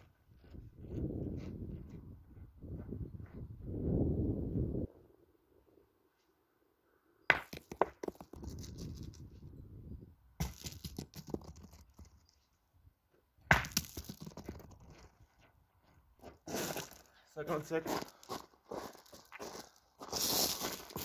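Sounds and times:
metal boules hitting gravel: 7.3 - 9.2, 10.4 - 12.2, 13.4 - 15.2
boule rolling on gravel: 7.4 - 9.3, 10.4 - 12.4, 13.5 - 15.5, 16.2 - 21.0
gravel crunching: 7.4 - 9.4, 10.4 - 12.5, 13.5 - 21.0.

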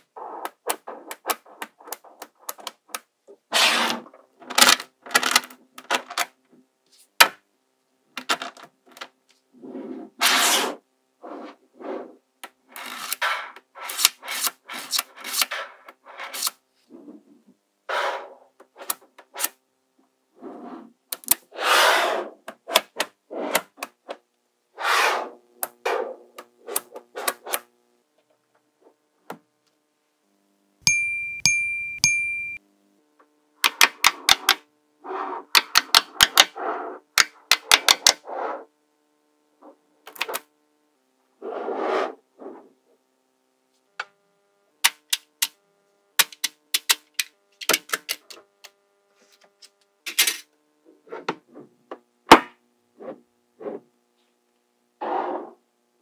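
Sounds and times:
high ringing tone: 30.8 - 32.6
magnetic balls clicking together: 44.8 - 45.6, 46.2 - 48.8.

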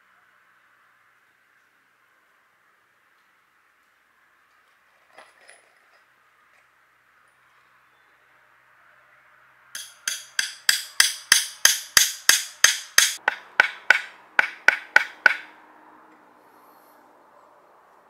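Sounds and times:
tool striking bamboo: 9.8 - 15.5.

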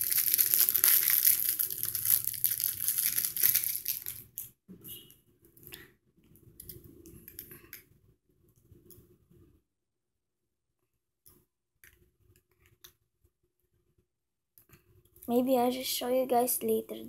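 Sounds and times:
plastic wrapping crinkling: 0.0 - 4.5.

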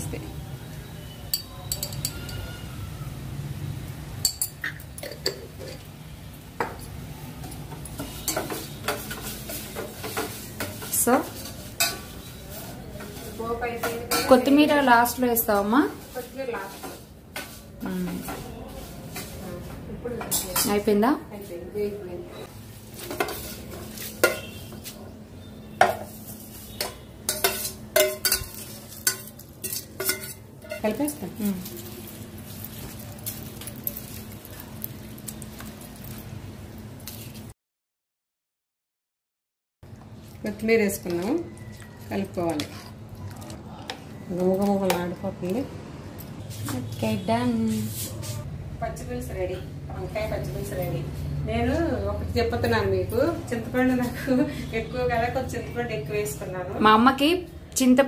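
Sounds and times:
spoon clinking on dish: 1.3 - 2.6, 4.2 - 5.9, 26.8 - 30.8
spoon stirring in bowl: 7.5 - 12.4, 22.9 - 25.0, 25.8 - 36.2, 41.0 - 45.0.

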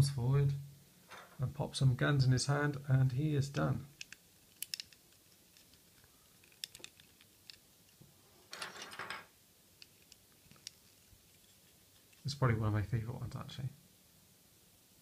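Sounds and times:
hard plastic toy clicking: 4.0 - 7.6.

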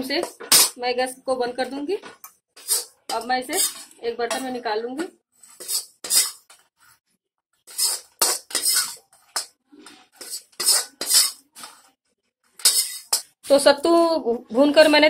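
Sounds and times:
spoon scraping metal pan: 0.2 - 0.8, 2.6 - 4.7, 5.4 - 7.0, 7.6 - 11.9, 12.5 - 13.4
spoon clinking on metal plate: 7.7 - 9.6, 10.2 - 11.7, 12.6 - 13.4.

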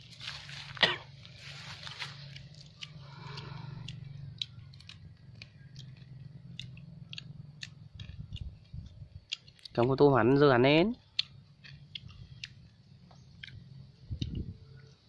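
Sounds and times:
low hum: 0.0 - 15.0
chewing: 0.1 - 9.9, 11.0 - 15.0
prawn shells cracking: 1.5 - 9.8.

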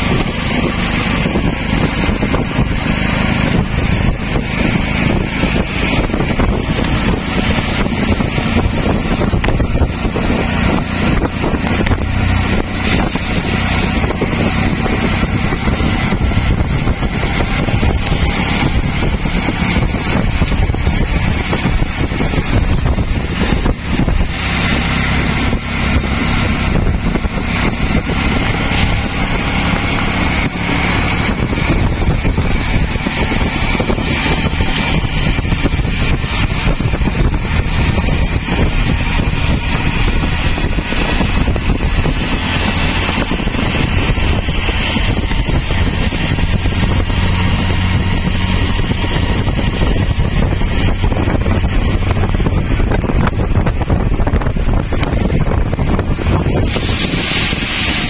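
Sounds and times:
wind on microphone: 0.0 - 58.0
tyre hiss on wet road: 56.6 - 58.0.

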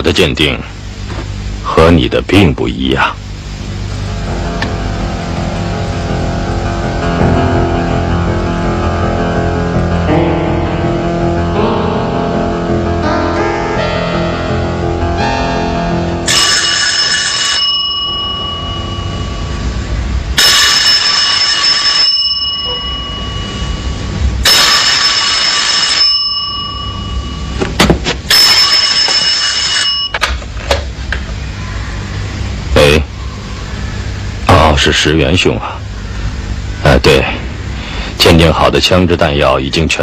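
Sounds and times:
telephone bell ringing: 16.3 - 19.8, 20.4 - 27.6, 28.3 - 30.2.

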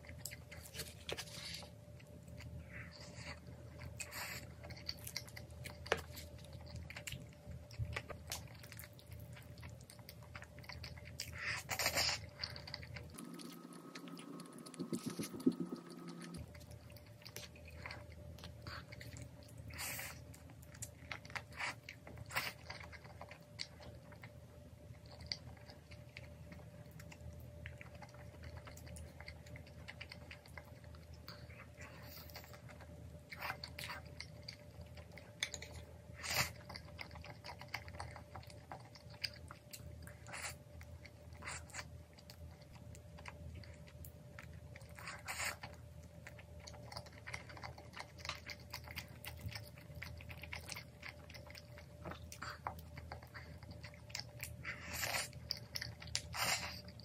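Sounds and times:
close chewing and eating: 0.0 - 57.0
wet mouth sounds: 13.2 - 16.4.

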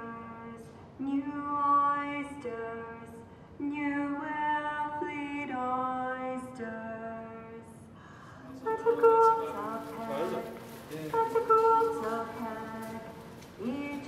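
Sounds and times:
woman singing long notes: 11.1 - 14.0.

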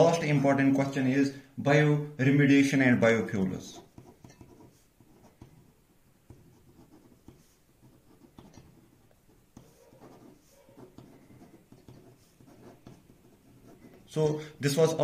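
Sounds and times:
pen scratching on paper: 3.2 - 14.2.

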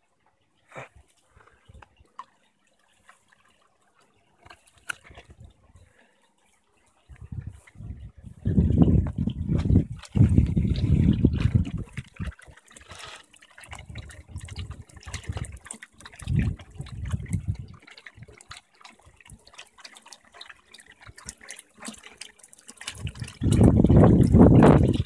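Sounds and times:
water trickling and splashing: 0.0 - 25.0
low rumbles on microphone: 7.1 - 12.3.

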